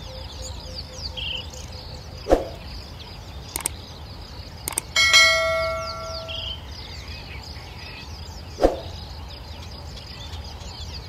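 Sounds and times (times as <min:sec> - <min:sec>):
low steady background noise: 0:00.0 - 0:11.0
small birds chirping: 0:00.0 - 0:11.0
quick clicks: 0:03.6 - 0:03.8, 0:04.6 - 0:05.0.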